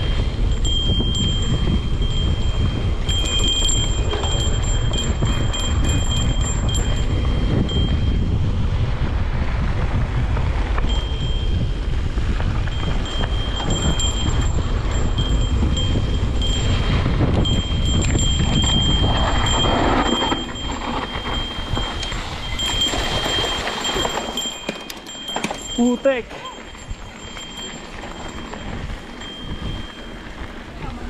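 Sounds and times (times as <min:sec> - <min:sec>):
high-pitched ringing tone: 0:00.0 - 0:08.7, 0:10.8 - 0:31.0
wind noise on microphone: 0:00.0 - 0:31.0.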